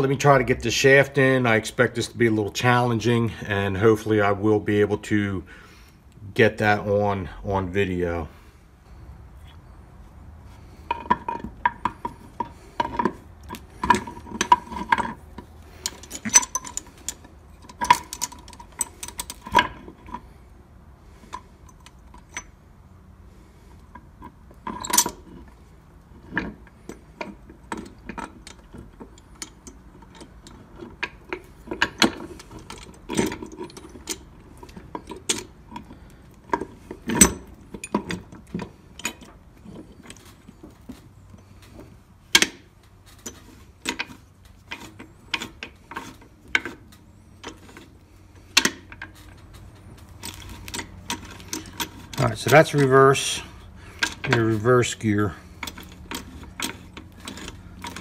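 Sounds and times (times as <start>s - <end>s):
metal gears clinking and knocking: 10.9s - 20.2s, 48.6s - 58.0s.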